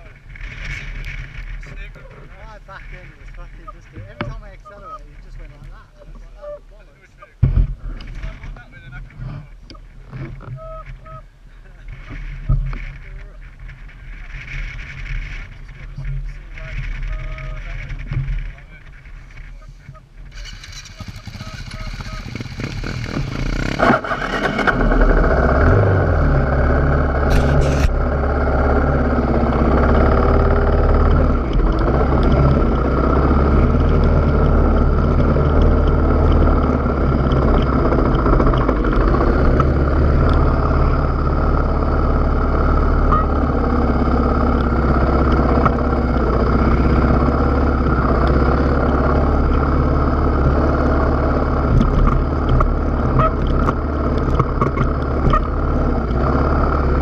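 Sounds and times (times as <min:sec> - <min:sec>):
motorcycle engine running: 0:00.0 - 0:06.2, 0:11.8 - 0:57.0
short clatter: 0:27.2 - 0:28.0.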